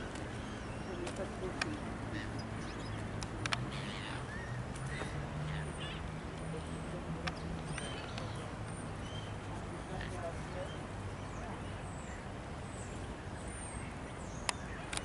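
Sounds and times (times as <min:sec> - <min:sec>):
sharp clicks: 0:03.2 - 0:03.6.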